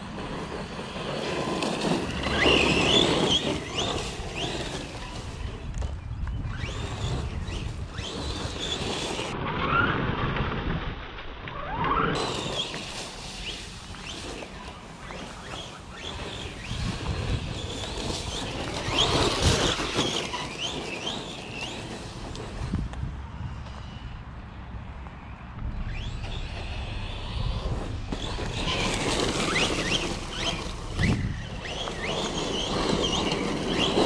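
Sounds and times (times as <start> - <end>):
steady rushing noise: 0.0 - 9.8, 12.2 - 34.0
toy truck rumbling over rough ground: 0.0 - 23.0, 25.6 - 34.0
electric motor whining: 25.6 - 34.0.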